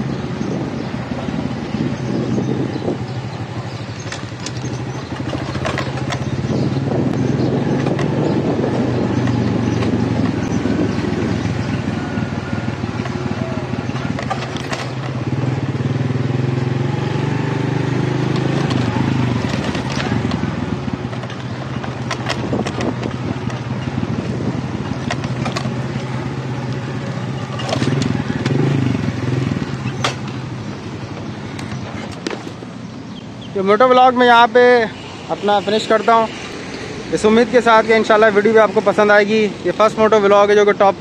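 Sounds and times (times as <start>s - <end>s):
motorcycle engine running: 0.0s - 41.0s
knocks and rattles from bumps: 2.5s - 16.7s, 17.3s - 34.1s.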